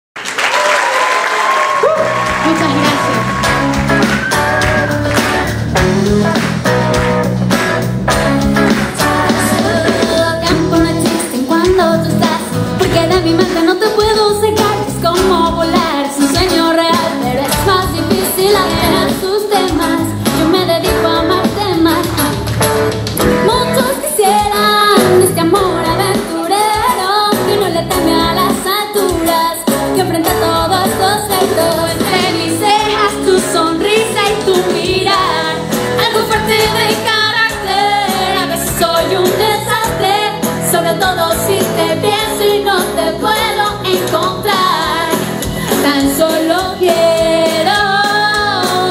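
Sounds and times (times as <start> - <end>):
acoustic guitar: 2.4 - 24.1
woman singing into a microphone: 9.2 - 22.5, 23.2 - 48.9.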